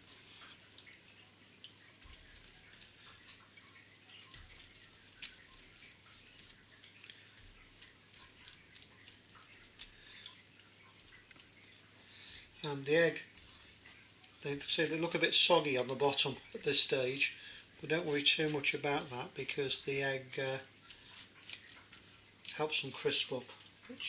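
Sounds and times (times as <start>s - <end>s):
pastry brush ticks and dabs: 0.0s - 24.0s.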